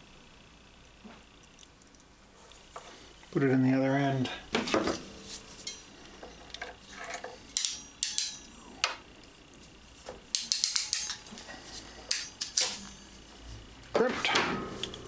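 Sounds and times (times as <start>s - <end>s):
wire crimper ratchet clicking: 10.3s - 11.2s.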